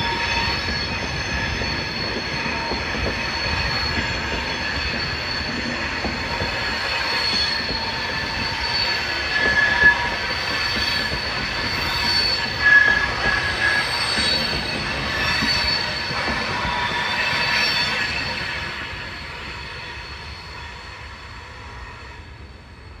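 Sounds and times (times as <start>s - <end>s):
train rumble: 0.0s - 23.0s
train wheels squealing: 0.0s - 23.0s.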